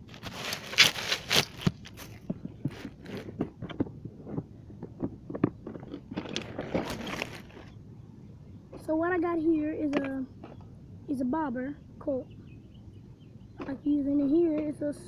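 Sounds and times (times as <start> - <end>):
plastic tackle box being handled: 0.1 - 7.7.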